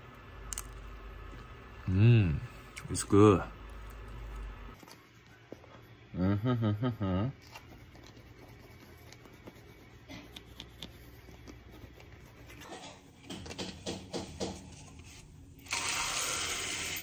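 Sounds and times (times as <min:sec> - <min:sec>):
toothbrush scrubbing teeth: 0:07.4 - 0:12.9.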